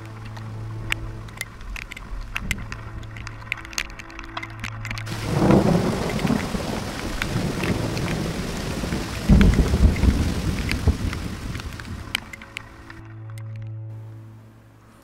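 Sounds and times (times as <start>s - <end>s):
heavy rain: 0.0s - 13.0s
thunder rumbling: 5.1s - 12.4s.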